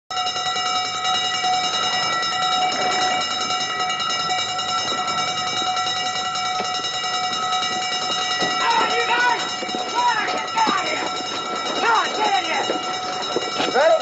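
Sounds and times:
alarm steady tone: 0.1 - 14.0.

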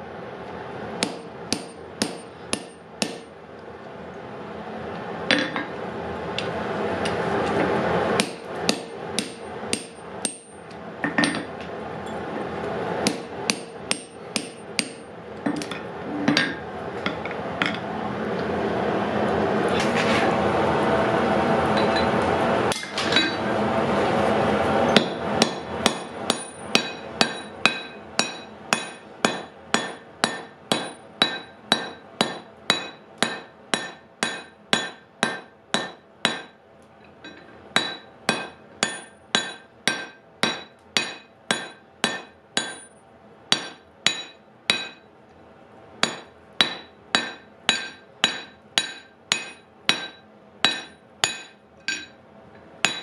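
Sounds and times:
hammer striking hot iron on anvil: 1.0 - 3.4, 8.2 - 12.2, 13.0 - 15.8, 24.9 - 36.6, 37.2 - 42.9, 43.5 - 45.1, 46.0 - 52.2.

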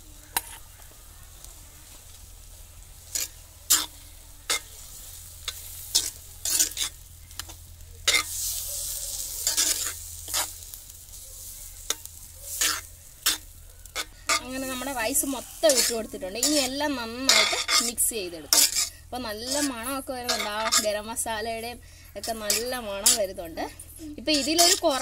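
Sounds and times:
rice rustling hiss: 0.0 - 25.0
spoon scraping and clinking pan: 8.1 - 8.4, 15.6 - 20.9, 24.3 - 25.0.

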